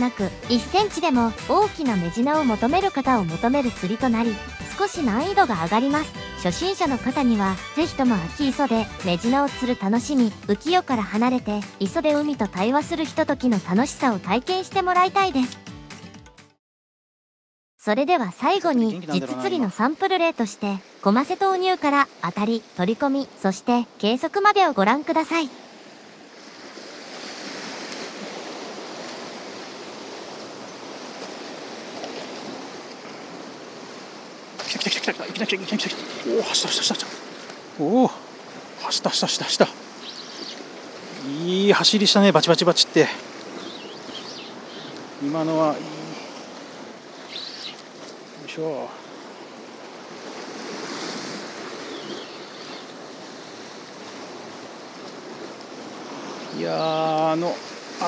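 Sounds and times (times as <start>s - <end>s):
sea waves washing against rocks: 25.1s - 58.0s.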